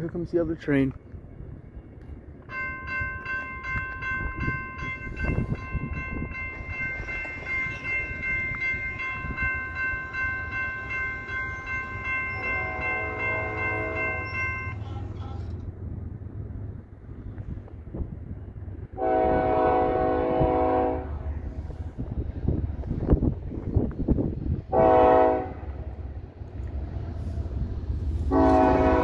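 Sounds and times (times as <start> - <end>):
freight train rumble: 0.0 - 29.0
locomotive air horn blast: 12.4 - 14.2, 19.0 - 21.2, 24.7 - 25.8, 28.2 - 29.0
lower horn chord: 12.4 - 14.3, 19.0 - 21.2, 24.7 - 25.7, 28.2 - 29.0.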